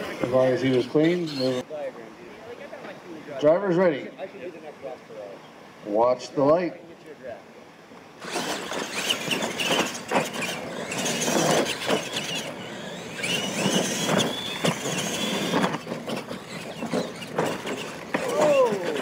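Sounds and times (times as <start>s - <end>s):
electric motors whining: 0.0s - 1.6s, 8.2s - 19.0s
tyres scrabbling over dirt: 8.2s - 19.0s.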